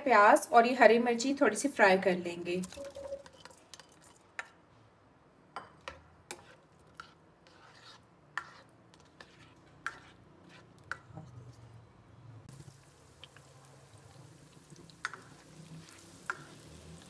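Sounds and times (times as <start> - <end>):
spatula scraping pan: 6.3 - 11.1, 15.0 - 16.8.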